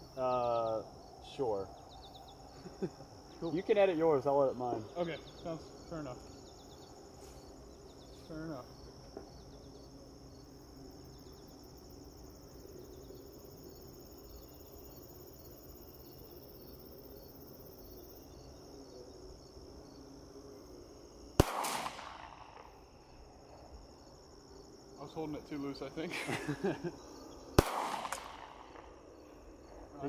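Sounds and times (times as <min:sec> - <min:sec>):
crickets chirping: 0:00.0 - 0:30.0
gunshot: 0:21.4 - 0:22.8, 0:27.6 - 0:28.9.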